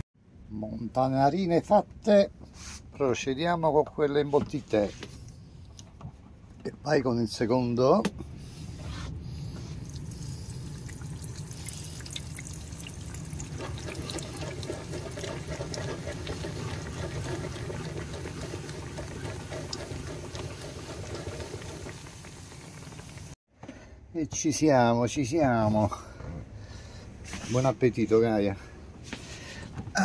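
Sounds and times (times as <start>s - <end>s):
hot oil sizzling in a pan: 10.4s - 23.4s.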